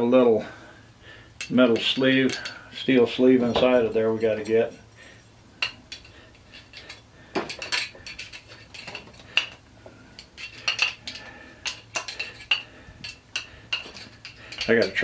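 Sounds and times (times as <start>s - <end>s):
screwdriver clinking in metal: 1.4s - 2.6s, 5.6s - 9.6s, 10.2s - 15.0s
metal end caps set down: 5.6s - 9.6s, 10.2s - 15.0s.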